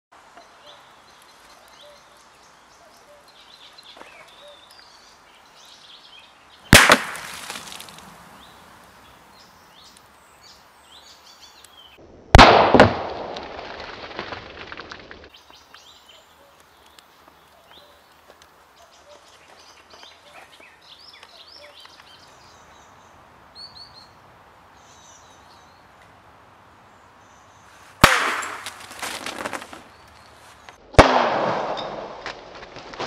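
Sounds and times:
can bursting with sharp pop: 6.7 - 8.0, 12.4 - 13.4, 28.0 - 29.6.

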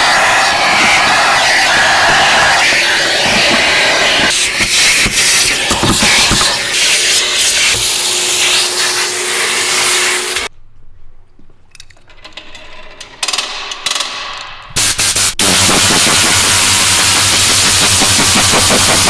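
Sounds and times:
compressed air hissing: 0.0 - 10.5, 14.8 - 19.0
shop vacuum whining: 0.0 - 10.5.

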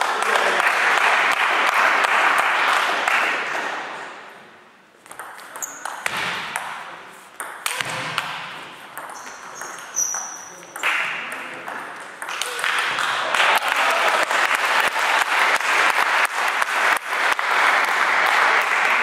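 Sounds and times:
spectators clapping: 0.0 - 3.8, 12.3 - 19.0.

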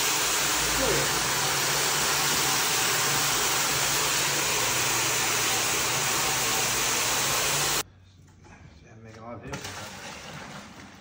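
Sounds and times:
rug-washing machine hissing: 0.0 - 7.8.

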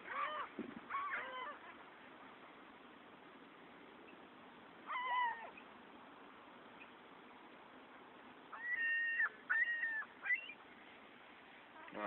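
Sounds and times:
gulls calling: 0.0 - 1.9, 4.8 - 5.7, 8.5 - 10.7
low steady background noise: 0.0 - 12.0.

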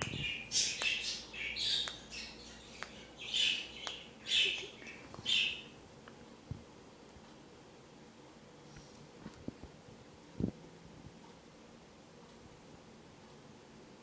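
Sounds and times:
bird chick squawking and chirping: 0.1 - 5.8.

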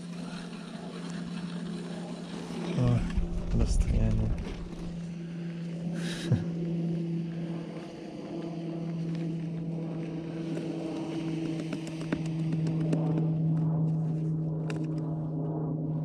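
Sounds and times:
snowmobile engine running: 0.0 - 15.4.

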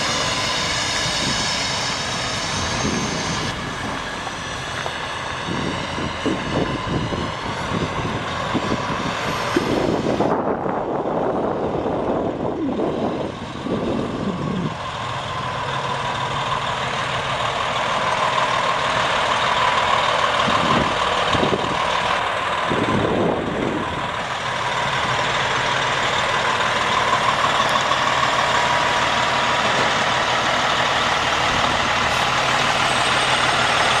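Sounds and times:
diesel truck engine running: 0.0 - 34.0
steady high whine: 0.0 - 34.0.

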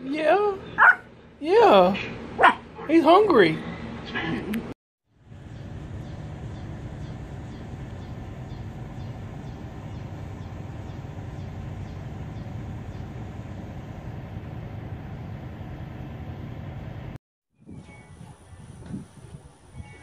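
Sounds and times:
low rumbling noise: 5.1 - 17.2.

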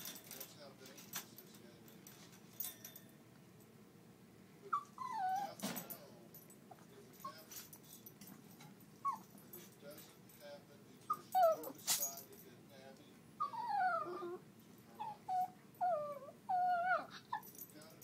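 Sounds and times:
small dog whining: 4.7 - 5.6, 9.0 - 9.4, 11.1 - 11.8, 13.4 - 17.7.

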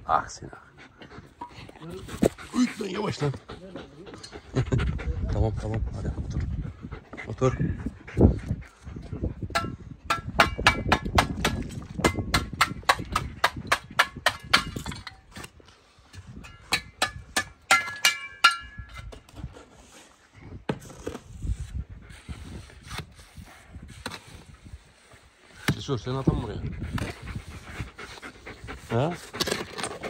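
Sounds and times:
hand tool striking brick: 9.5 - 15.5, 16.4 - 19.3.

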